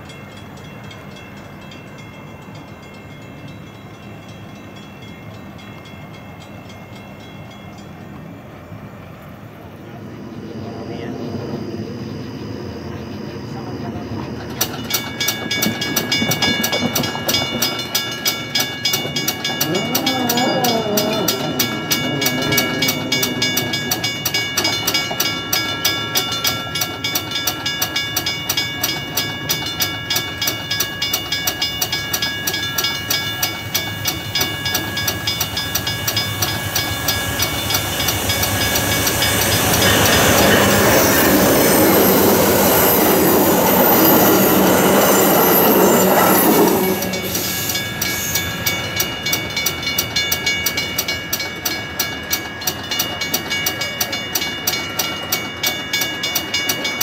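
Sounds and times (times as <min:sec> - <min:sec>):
faint high steady tones: 0:00.0 - 0:55.2
train wheels clicking over rail joints: 0:13.9 - 0:57.0.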